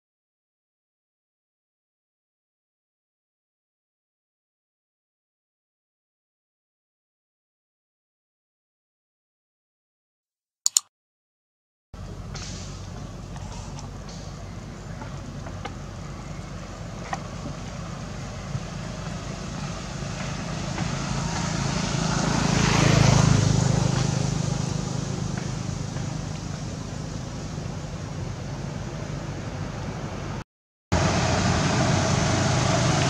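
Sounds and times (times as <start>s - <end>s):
vehicle passing by: 12.0s - 30.4s, 31.0s - 33.0s
low engine hum: 12.0s - 33.0s.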